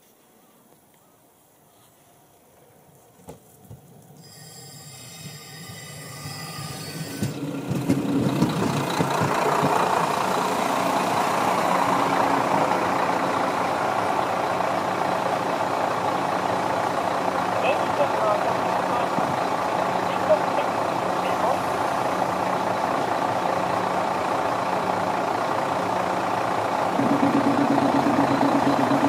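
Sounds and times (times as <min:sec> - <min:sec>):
diesel railcar engine and wheels: 0:00.0 - 0:29.0
high brake squeal: 0:04.2 - 0:07.4.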